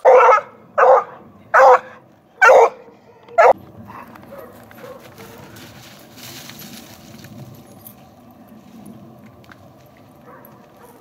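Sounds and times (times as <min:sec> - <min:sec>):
dog barking: 0:00.0 - 0:02.8, 0:03.4 - 0:05.6, 0:10.2 - 0:11.0
rustle of brush: 0:03.8 - 0:11.0.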